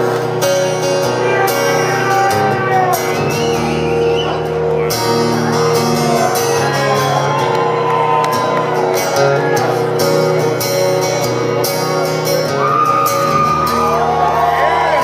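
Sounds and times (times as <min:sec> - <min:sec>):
acoustic guitar chords: 0:00.0 - 0:15.0
audience shouting: 0:01.2 - 0:10.3, 0:12.4 - 0:15.0.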